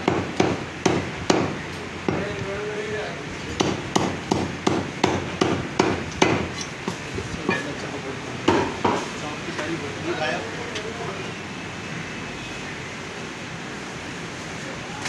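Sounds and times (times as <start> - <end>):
cleaver chopping on wooden block: 0.0 - 2.3, 3.6 - 6.5.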